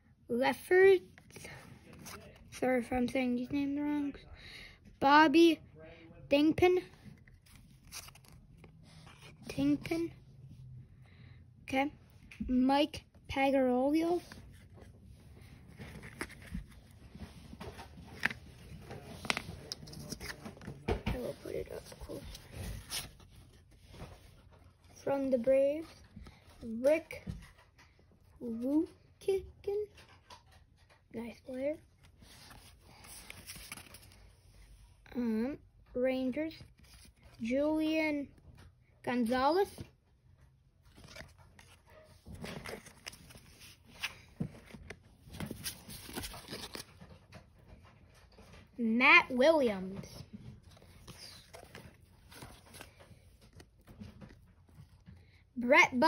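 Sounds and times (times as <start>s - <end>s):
cards rustling: 1.1s - 2.9s, 6.9s - 10.1s, 12.9s - 27.8s, 30.0s - 34.7s, 36.6s - 37.6s, 40.8s - 48.6s, 49.6s - 55.2s.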